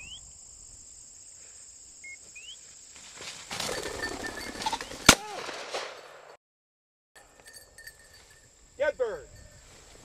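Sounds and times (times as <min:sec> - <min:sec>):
rustling: 0:02.6 - 0:05.1
shotgun shot: 0:05.1 - 0:06.4.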